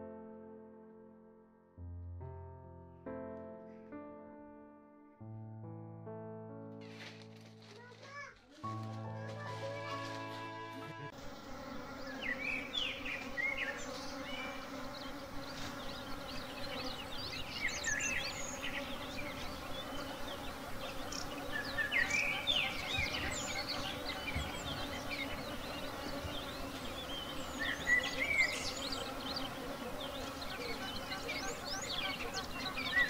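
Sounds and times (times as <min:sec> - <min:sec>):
honeybees buzzing: 0:06.8 - 0:33.0.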